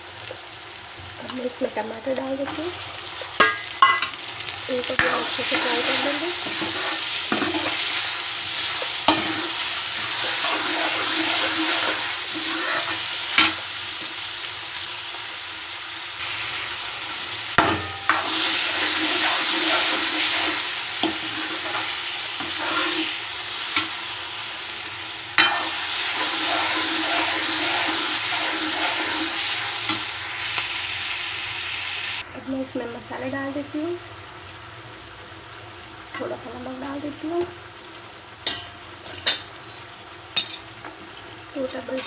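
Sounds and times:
onions sizzling in oil: 0:00.0 - 0:42.0
ladle knocking pan: 0:03.4 - 0:04.1, 0:17.6 - 0:18.4
ladle scraping pan: 0:05.0 - 0:13.6, 0:17.6 - 0:23.2, 0:25.4 - 0:30.1.

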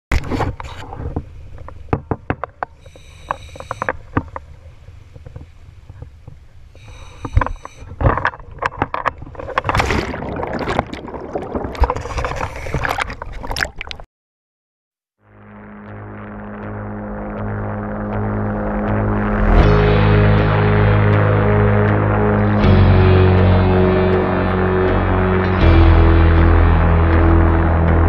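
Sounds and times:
heavy splashing water: 0:09.4 - 0:14.0
low rumble: 0:15.3 - 0:28.0.

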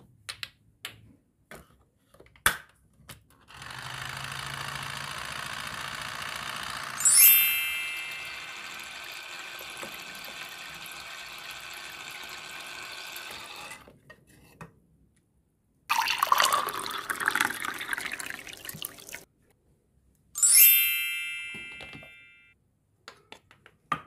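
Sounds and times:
water running in a stream: 0:15.9 - 0:19.2.

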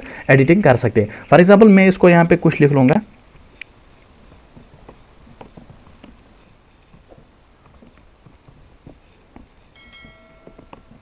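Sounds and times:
keyboard typing clicks: 0:10.4 - 0:11.0.

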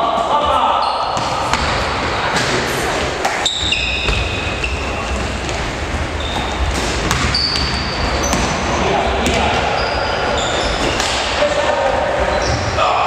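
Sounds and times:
basketball bouncing: 0:01.2 - 0:02.0, 0:05.1 - 0:08.6, 0:09.2 - 0:09.6
sneakers squeaking on wooden floor: 0:03.0 - 0:12.8.

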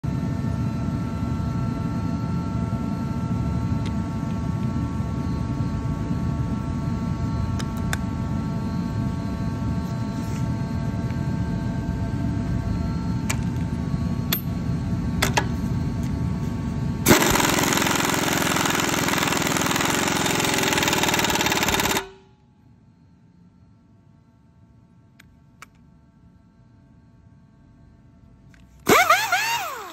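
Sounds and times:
low mechanical rumble: 0:00.1 - 0:29.9
air impact wrench hammering: 0:17.0 - 0:22.3, 0:28.8 - 0:29.9.

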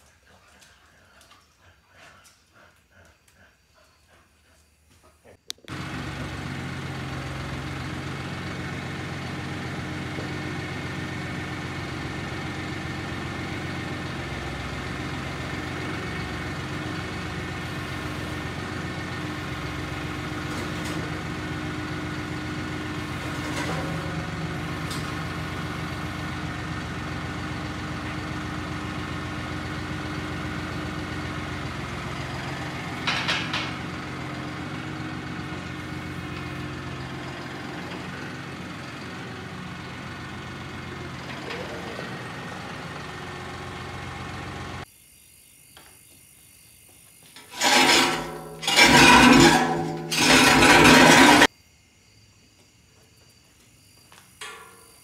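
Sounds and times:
tractor engine idling: 0:05.4 - 0:44.9, 0:47.4 - 0:51.5.

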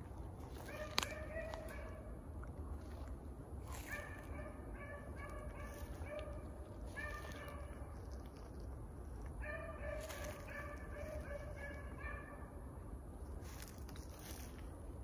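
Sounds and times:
dogs barking: 0:00.5 - 0:02.2, 0:03.6 - 0:08.4, 0:09.3 - 0:12.7.

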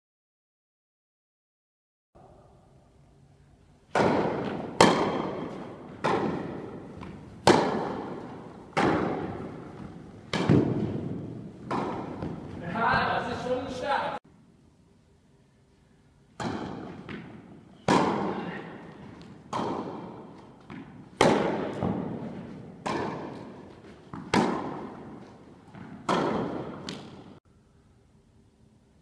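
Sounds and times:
tennis ball struck by racket: 0:03.9 - 0:12.7, 0:16.4 - 0:27.4
tennis ball bouncing: 0:03.9 - 0:13.4, 0:16.4 - 0:27.4.

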